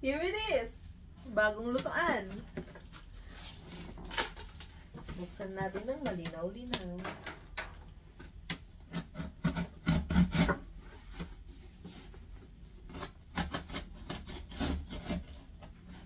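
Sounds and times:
cardboard rubbing and scraping: 9.0s - 16.0s.

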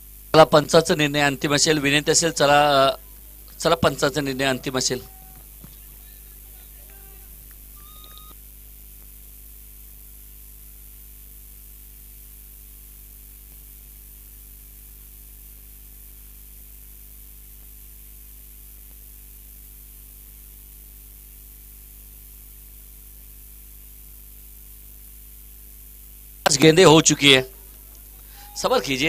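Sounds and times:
constant hiss: 0.0s - 29.0s
electrical hum: 0.0s - 29.0s.

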